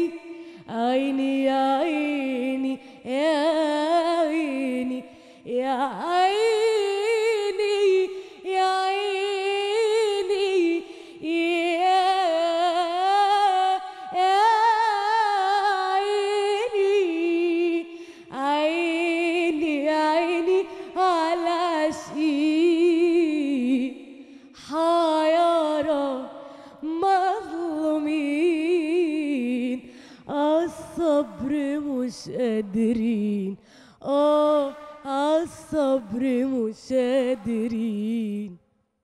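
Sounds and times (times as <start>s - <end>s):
woman singing unaccompanied: 0.0s - 38.6s
singer breathing: 0.2s - 0.7s, 2.8s - 3.1s, 5.0s - 5.5s, 8.1s - 8.5s, 10.8s - 11.2s, 13.8s - 14.2s, 17.8s - 18.4s, 20.6s - 21.0s, 24.1s - 24.6s, 26.3s - 26.8s, 29.8s - 30.3s, 33.6s - 34.1s.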